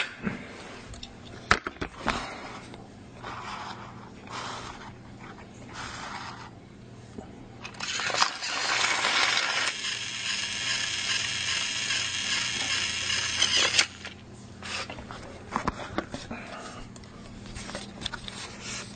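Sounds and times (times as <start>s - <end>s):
motor clicks: 7.6s - 14.2s
small geared motor whirring: 7.7s - 14.2s.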